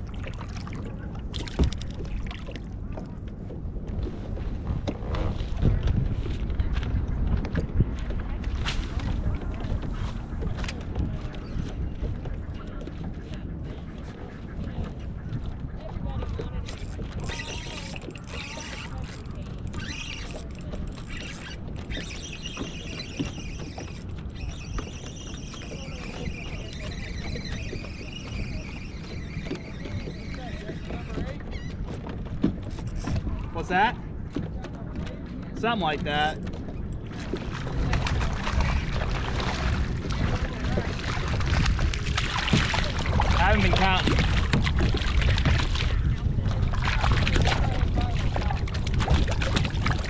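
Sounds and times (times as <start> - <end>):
water lapping at a kayak: 0.0 - 50.0
wind rumbling on microphone: 0.0 - 50.0
board knocking against hull: 1.3 - 6.5, 28.8 - 33.5, 34.1 - 50.0
fishing reel whirring: 16.7 - 30.5.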